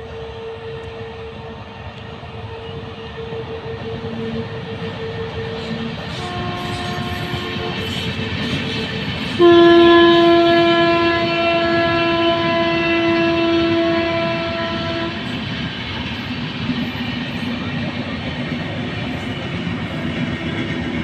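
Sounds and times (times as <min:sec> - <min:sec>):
train wheel clatter: 0:00.0 - 0:21.0
locomotive horn blasts: 0:02.5 - 0:08.1, 0:09.4 - 0:15.3.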